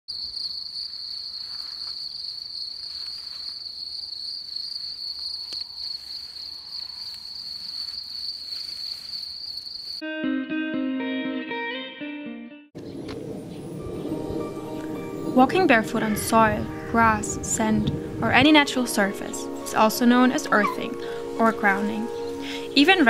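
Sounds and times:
crickets trilling: 0.1 - 10.0
bare feet rustling in grass: 0.8 - 10.0.

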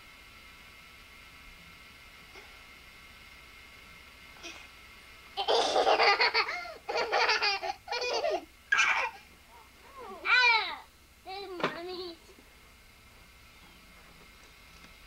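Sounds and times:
children laughing: 5.4 - 9.2.

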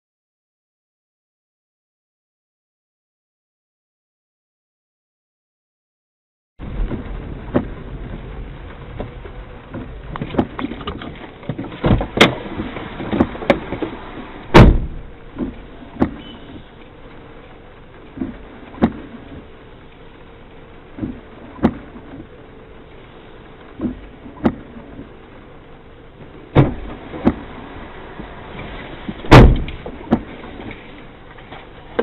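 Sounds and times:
car cabin rumble: 6.6 - 32.0
heavy thud: 14.5 - 16.3, 26.5 - 27.4, 29.1 - 30.3.

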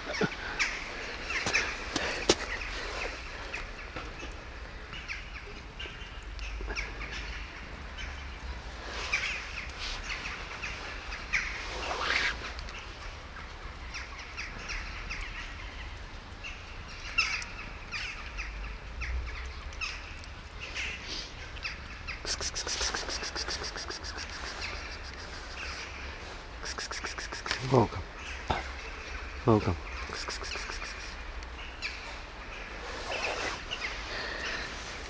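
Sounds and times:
birds chirping: 0.0 - 8.3, 17.1 - 35.0
fast rattling bird call: 22.1 - 26.0, 26.6 - 27.8, 29.9 - 31.2.

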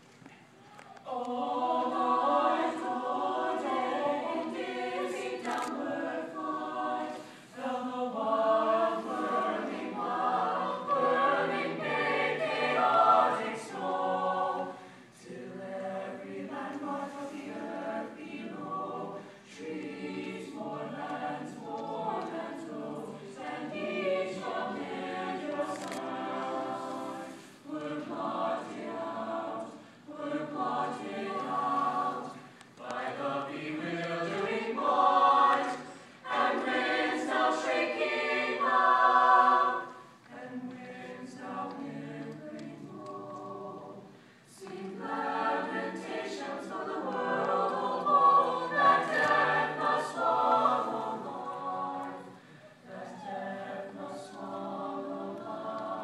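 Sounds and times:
choir singing in harmony: 1.0 - 56.0.

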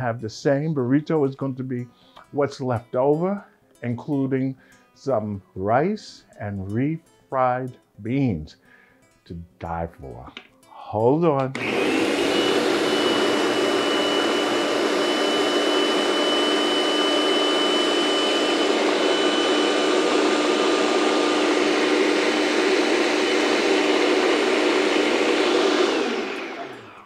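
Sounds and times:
electric blender running: 11.6 - 27.0.

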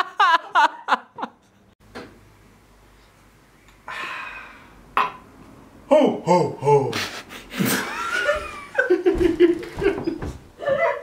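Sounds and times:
breathy hiss: 3.8 - 4.8.

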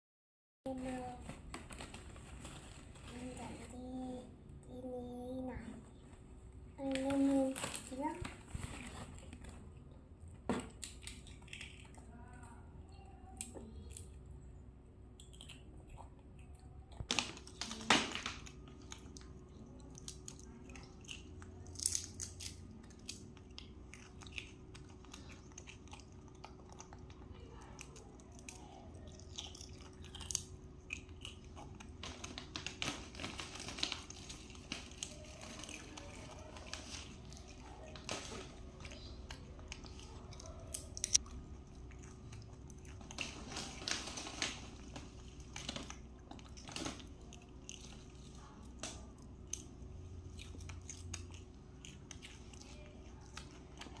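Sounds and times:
potato chips crunching: 15.2 - 54.0.

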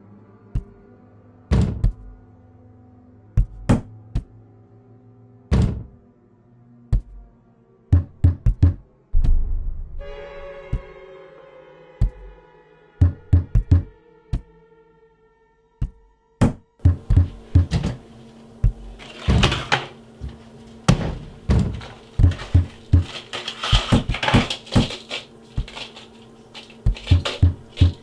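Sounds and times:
low music drone: 0.0 - 28.0
cabinet being rummaged: 16.9 - 28.0.

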